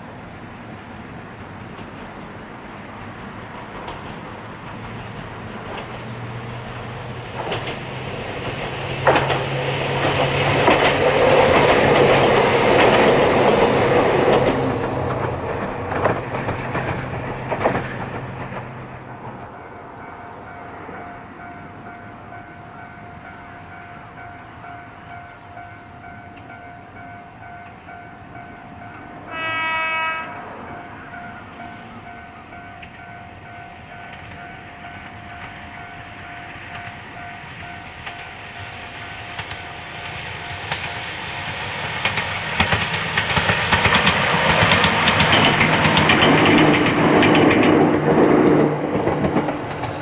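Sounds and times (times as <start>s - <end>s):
wheels clacking over rail joints: 3.0s - 19.7s, 31.1s - 50.0s
train horn blast: 28.9s - 32.9s.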